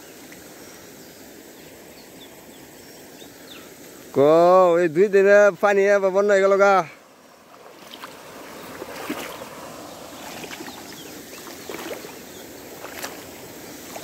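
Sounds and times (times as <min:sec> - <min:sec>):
river floodwater rushing: 0:05.8 - 0:14.0.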